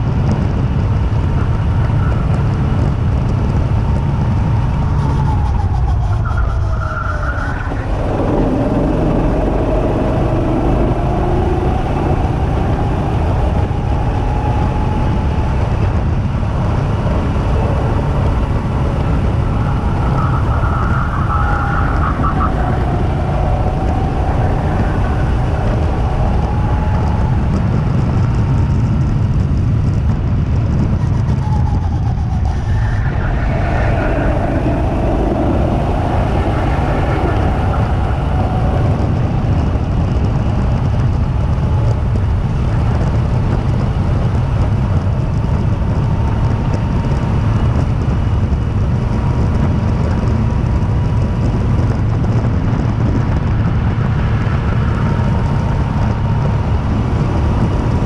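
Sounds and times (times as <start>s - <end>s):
wind and track noise: 0.0s - 58.0s
go-kart engine revving: 7.3s - 30.0s.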